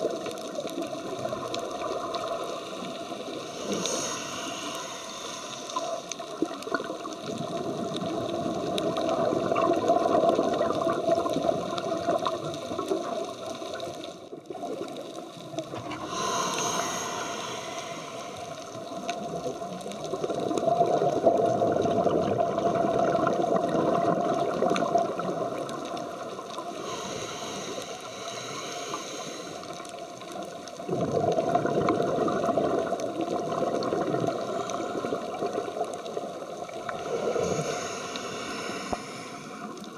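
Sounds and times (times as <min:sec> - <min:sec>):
hissy regulator inhalations: 0:02.6 - 0:06.2, 0:15.9 - 0:18.8, 0:26.8 - 0:29.8, 0:36.9 - 0:39.9
bubbling underwater exhalations: 0:20.2 - 0:26.2, 0:30.8 - 0:38.0.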